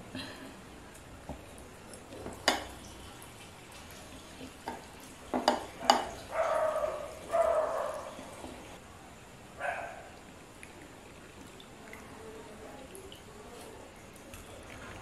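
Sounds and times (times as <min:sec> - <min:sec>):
ceramic dishes clinking: 0:02.4 - 0:02.8, 0:04.7 - 0:06.2.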